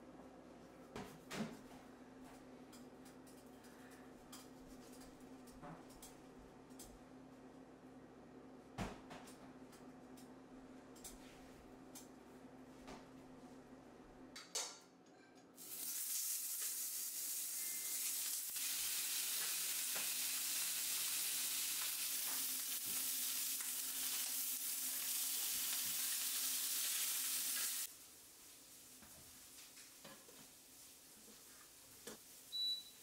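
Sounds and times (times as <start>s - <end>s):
fish sizzling in hot oil: 15.6s - 27.9s.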